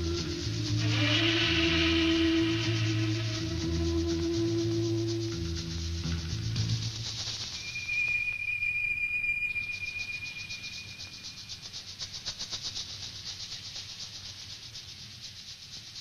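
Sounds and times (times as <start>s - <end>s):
pulsing high hiss: 0.0s - 16.0s
thin high electronic tone: 7.6s - 11.4s.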